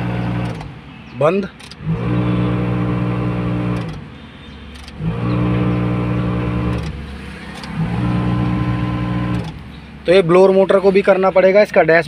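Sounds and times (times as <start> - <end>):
blower fan motor humming: 0.0 - 0.8, 1.8 - 4.1, 4.8 - 9.8.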